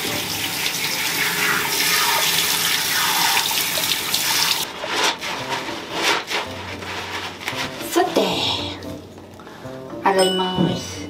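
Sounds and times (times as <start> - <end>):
shower water hissing: 0.0 - 4.7.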